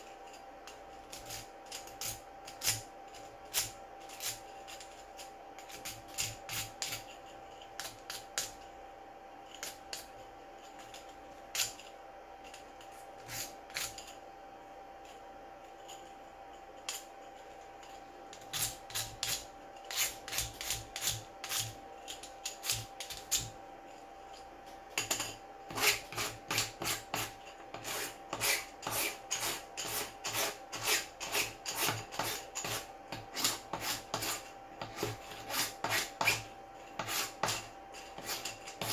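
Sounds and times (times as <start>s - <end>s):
hand file scraping plastic: 25.7s - 38.9s.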